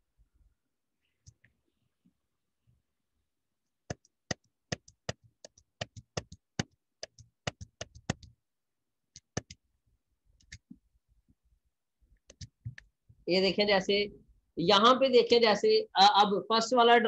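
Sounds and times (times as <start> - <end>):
computer mouse clicking: 10.4 - 10.7.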